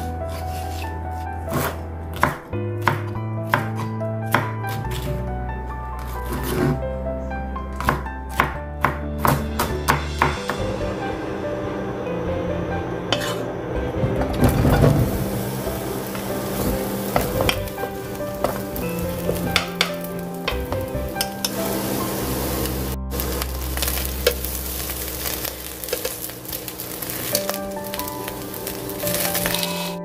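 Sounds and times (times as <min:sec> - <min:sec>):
eggplant sizzling in oil: 0:14.6 - 0:30.0.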